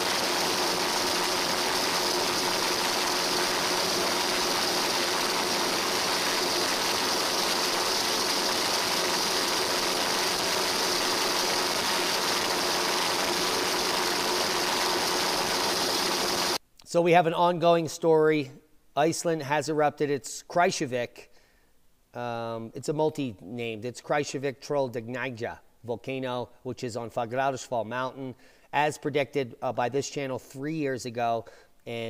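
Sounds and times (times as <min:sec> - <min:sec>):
engine drone: 0:00.0 - 0:16.6
hiss: 0:00.0 - 0:16.6.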